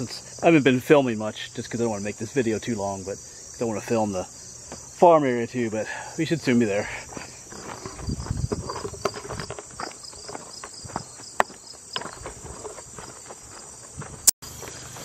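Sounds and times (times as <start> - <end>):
insects trilling: 0.0 - 15.0
footsteps on grassy trail: 4.6 - 5.0, 6.4 - 15.0.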